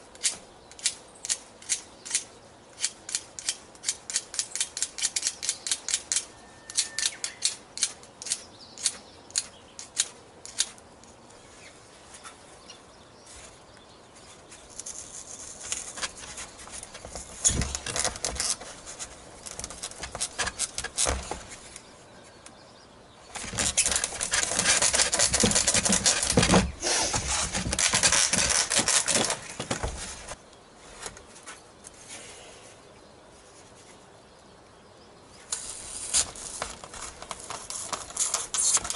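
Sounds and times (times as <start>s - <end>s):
skewers scraping into foam: 23.4s - 31.1s.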